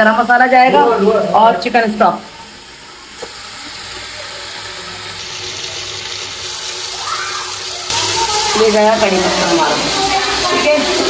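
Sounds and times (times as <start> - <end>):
spices sizzling in hot oil: 0.0 - 11.0.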